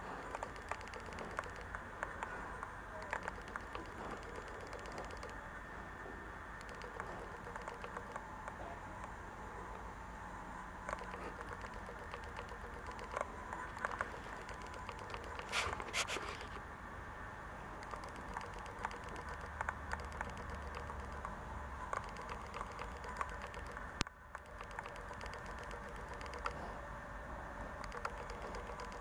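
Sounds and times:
small clicks: 0:00.0 - 0:05.4, 0:06.6 - 0:09.9, 0:10.8 - 0:16.6, 0:17.8 - 0:26.7, 0:27.8 - 0:29.0
hand scratching dog fur: 0:15.3 - 0:16.6.

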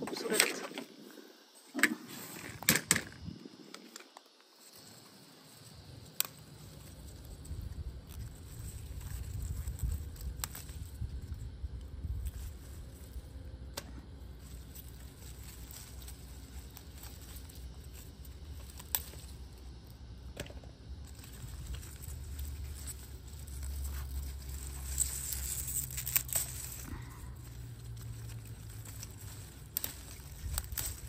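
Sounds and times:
leaves rustling: 0:04.4 - 0:13.4, 0:14.1 - 0:20.0, 0:21.0 - 0:31.0
low rumble on microphone: 0:07.2 - 0:14.3.

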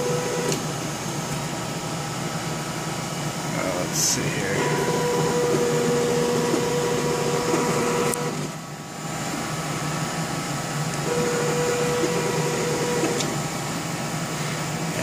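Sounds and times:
steady hum: 0:00.0 - 0:15.0
stepper motors whining: 0:03.5 - 0:08.7, 0:10.9 - 0:13.7.

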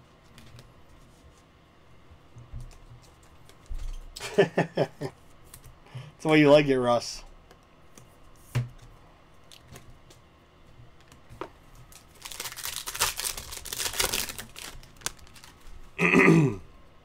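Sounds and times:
wrapper tearing and crinkling: 0:11.9 - 0:15.7.

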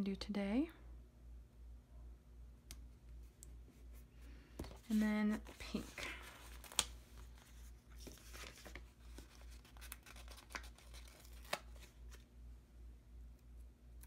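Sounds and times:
stickers peeling and paper crinkling: 0:04.6 - 0:12.3.

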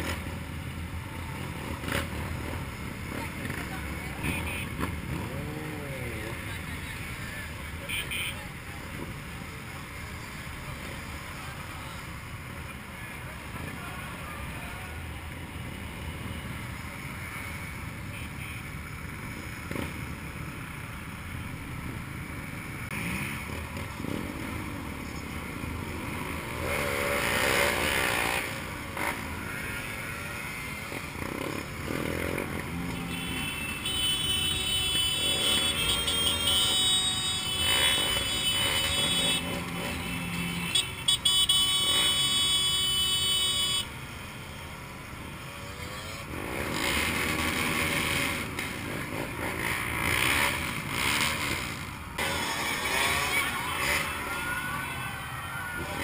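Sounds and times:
motorcycle engine revving: 0:26.0 - 0:29.9, 0:34.8 - 0:40.9, 0:45.7 - 0:54.6.

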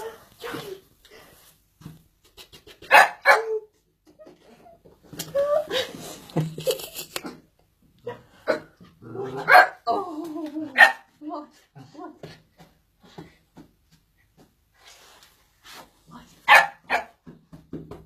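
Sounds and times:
dog barking: 0:02.9 - 0:03.6, 0:09.4 - 0:09.8, 0:10.8 - 0:11.1, 0:16.5 - 0:17.2.

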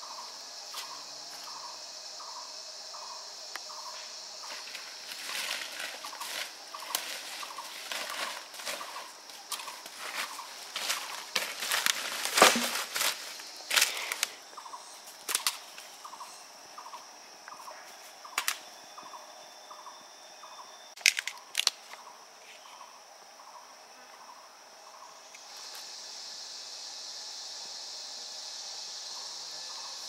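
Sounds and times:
high insect buzz: 0:00.0 - 0:30.0
dry branches cracking and snapping: 0:09.5 - 0:14.3, 0:15.2 - 0:15.6, 0:21.0 - 0:21.8.

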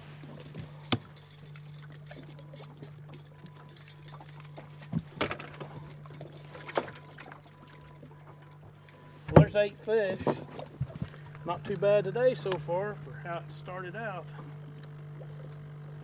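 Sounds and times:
steady low hum: 0:00.0 - 0:16.0
knocks and rattling in metal boat: 0:04.3 - 0:08.5, 0:09.2 - 0:11.8.

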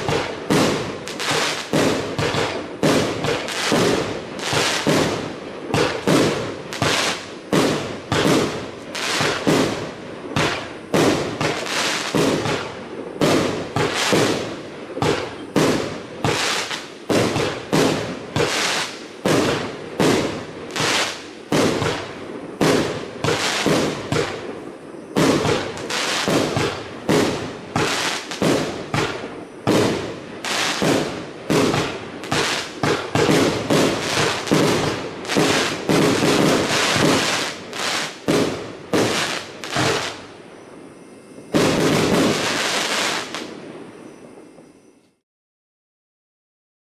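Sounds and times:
fireworks cake bangs: 0:00.0 - 0:24.5, 0:25.2 - 0:40.2.

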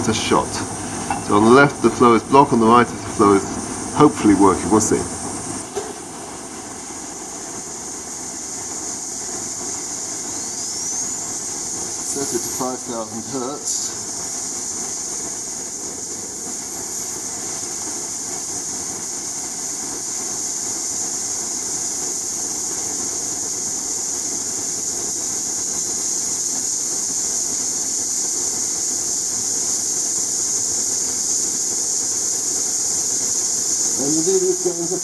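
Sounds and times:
compressed air hissing: 0:00.0 - 0:35.0
faint high whistle rising: 0:07.7 - 0:16.3.

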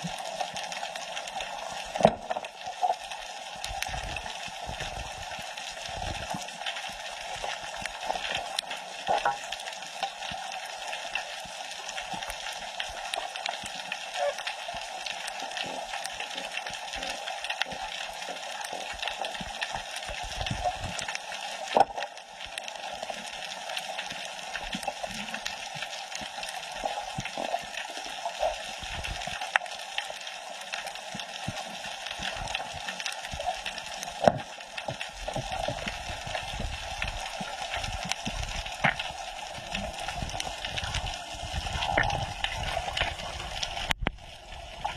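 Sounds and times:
muffled underwater hiss: 0:00.0 - 0:44.9
small underwater clicks and crackles: 0:00.0 - 0:44.9.

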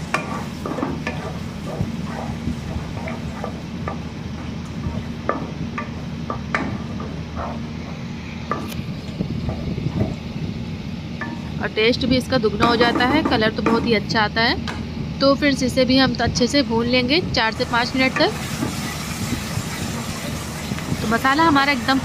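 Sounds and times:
spatula scraping a pan: 0:00.0 - 0:03.7
steady low hum: 0:00.0 - 0:22.0.

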